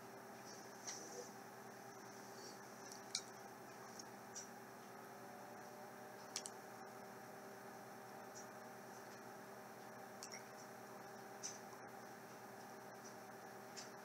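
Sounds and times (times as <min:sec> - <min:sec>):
faint room hum: 0:00.0 - 0:14.0.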